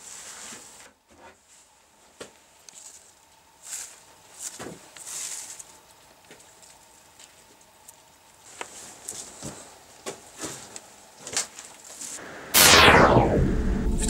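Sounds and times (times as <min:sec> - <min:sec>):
hand rustling dry leaves: 0:03.6 - 0:07.4.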